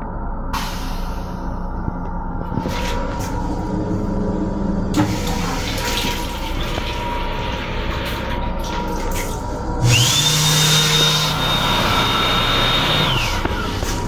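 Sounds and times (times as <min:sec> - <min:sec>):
water running into sink: 0:04.9 - 0:09.5
hand dryer air rush: 0:09.8 - 0:14.0.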